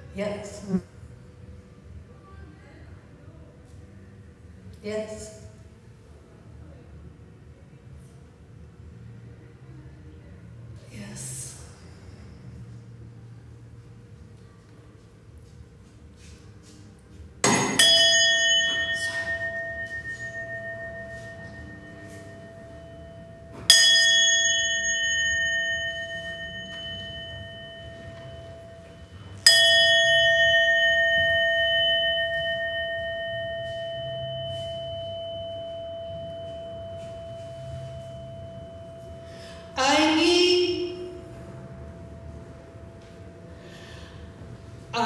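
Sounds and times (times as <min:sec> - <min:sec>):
brass hand bell ringing: 0:17.5 - 0:39.7.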